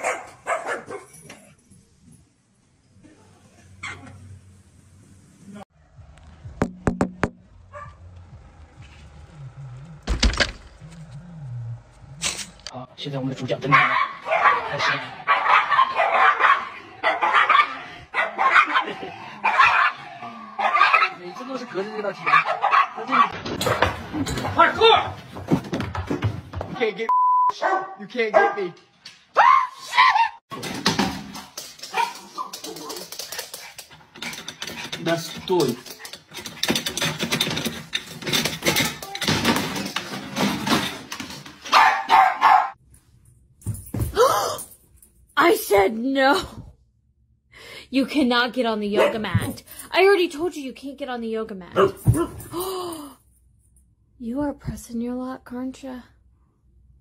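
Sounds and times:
small dogs barking: 0:00.0 - 0:01.2, 0:13.6 - 0:23.3, 0:27.6 - 0:28.6, 0:41.7 - 0:42.8, 0:49.0 - 0:49.3
knocking and rattling: 0:30.5 - 0:41.7.

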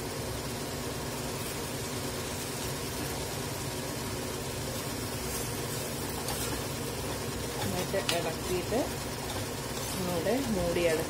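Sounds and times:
mechanical hum and hiss: 0:00.0 - 0:11.0
spoon scraping pan: 0:05.2 - 0:11.0.

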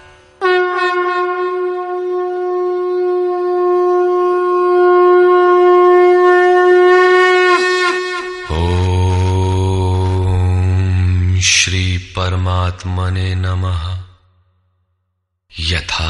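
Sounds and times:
conch shell blown: 0:00.0 - 0:09.6.

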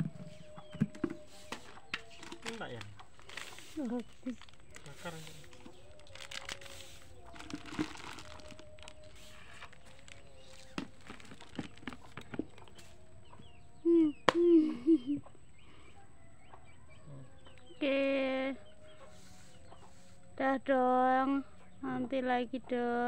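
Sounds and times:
chicken clucking: 0:11.6 - 0:14.3, 0:18.6 - 0:20.2.

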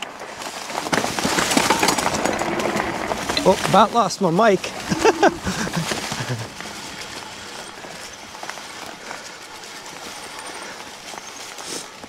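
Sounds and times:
bike knocks and rattles: 0:00.0 - 0:07.2
bike tires rolling over dry leaves: 0:00.0 - 0:12.0.

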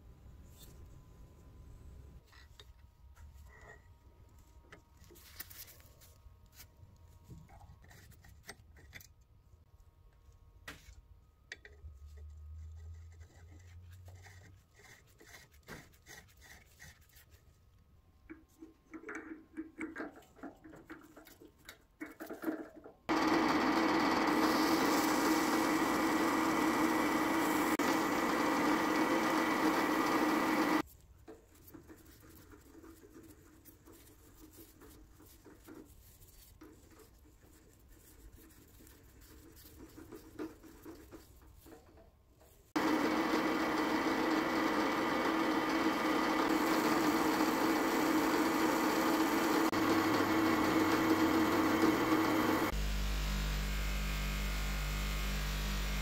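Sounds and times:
drill press motor running: 0:23.1 - 0:30.8, 0:42.8 - 0:56.0.

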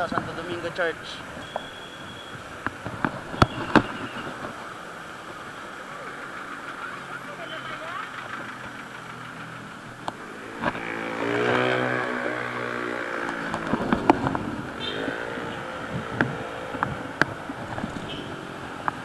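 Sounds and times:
vehicles passing: 0:00.0 - 0:19.0
sharp clicks and rattles: 0:02.5 - 0:11.0, 0:13.2 - 0:14.9.

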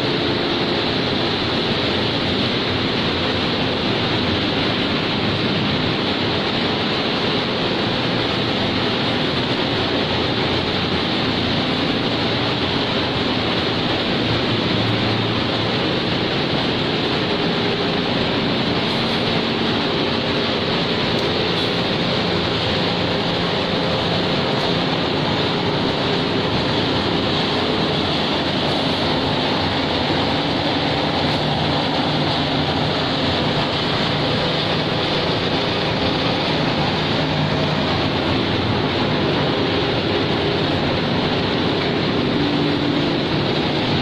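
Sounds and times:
extrusion machine running: 0:00.0 - 0:44.0.

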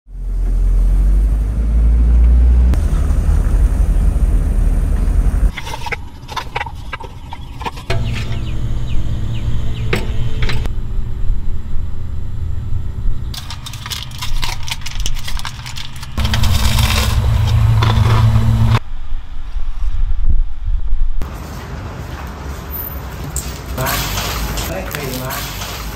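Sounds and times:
engine and road noise: 0:00.1 - 0:20.0, 0:20.6 - 0:25.9
steady low hum: 0:02.6 - 0:19.4
coffee gear clicking and clinking: 0:05.5 - 0:10.7, 0:13.3 - 0:18.1.

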